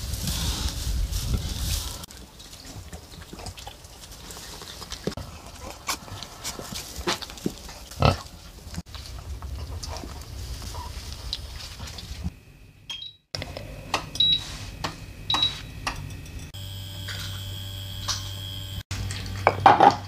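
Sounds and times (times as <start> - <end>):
shuffling in straw: 0.0 - 2.9, 3.5 - 12.3, 14.4 - 14.8
pig grunting: 2.7 - 8.4
short high beeps: 14.2 - 14.5.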